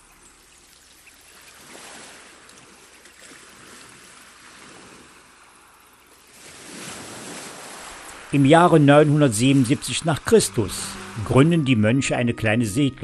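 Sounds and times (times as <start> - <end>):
sea waves washing in: 0.0 - 12.4.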